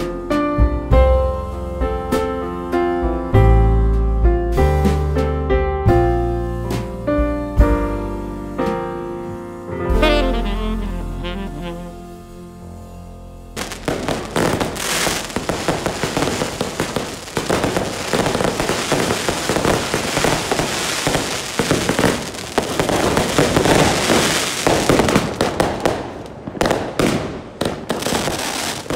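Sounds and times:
fireworks crackling and banging: 0:09.9 - 0:11.9, 0:13.6 - 0:28.9.

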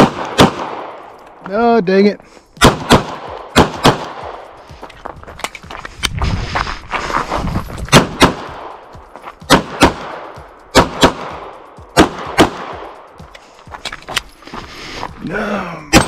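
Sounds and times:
pistol shots: 0:00.0 - 0:01.0, 0:02.6 - 0:04.4, 0:07.9 - 0:08.8, 0:09.5 - 0:13.0.

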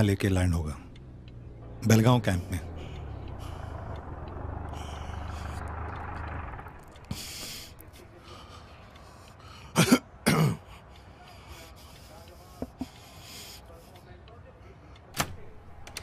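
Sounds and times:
low steady hum: 0:00.8 - 0:08.1
man clearing throat: 0:09.7 - 0:10.7.

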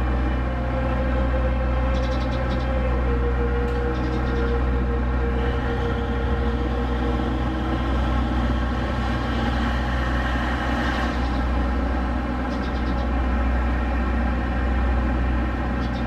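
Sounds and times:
diesel railcar idling: 0:00.0 - 0:16.0.

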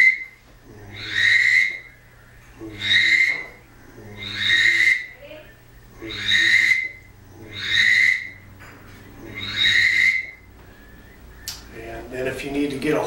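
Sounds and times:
high-pitched whistle blasts: 0:00.0 - 0:00.4
breath noise: 0:10.6 - 0:11.3.

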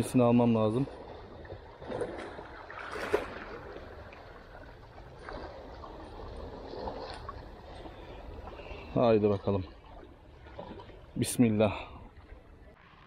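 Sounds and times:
sea water washing among rocks: 0:00.8 - 0:09.6.

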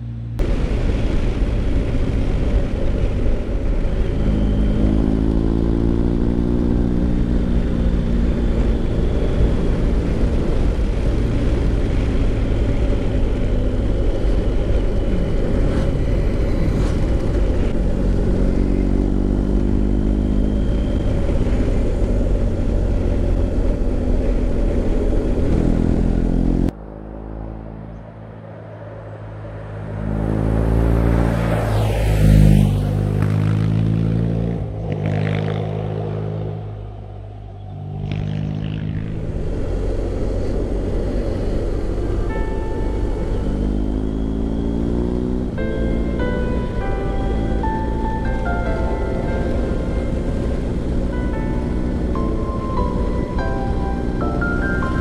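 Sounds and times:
motorcycle engine running hard: 0:00.0 - 0:26.7, 0:38.0 - 0:55.0
wind noise: 0:00.0 - 0:26.7.

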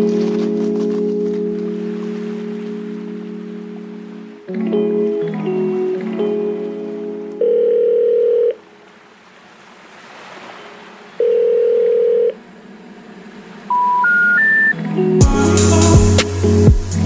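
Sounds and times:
telephone ringing tone: 0:07.4 - 0:08.6, 0:11.2 - 0:12.4, 0:13.7 - 0:14.8
rising short beeps: 0:13.7 - 0:14.8.

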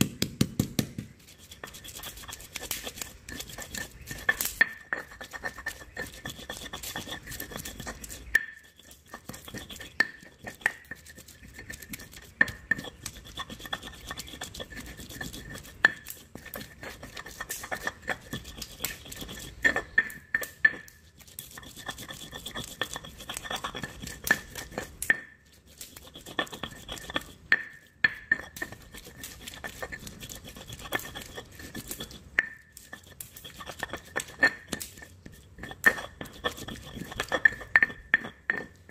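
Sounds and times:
stone knocking on stone: 0:00.0 - 0:01.8, 0:32.0 - 0:38.9
stone pestle grinding paste: 0:00.1 - 0:38.9.

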